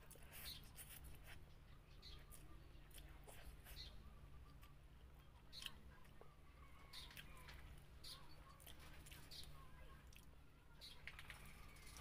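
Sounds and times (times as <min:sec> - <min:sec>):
close-up chewing and mouth smacks: 0:05.5 - 0:06.3, 0:06.9 - 0:07.7, 0:08.6 - 0:09.4.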